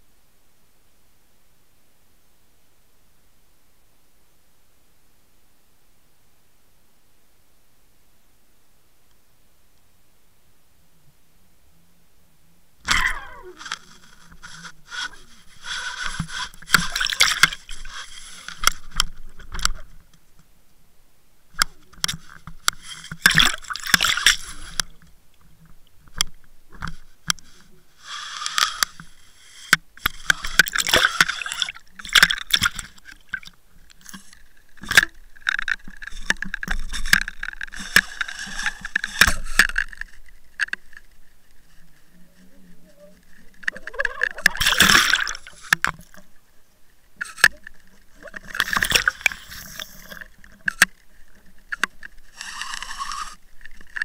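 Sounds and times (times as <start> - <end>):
scraping on camera housing: 12.9 - 20.2, 21.6 - 42.2, 47.2 - 54.0.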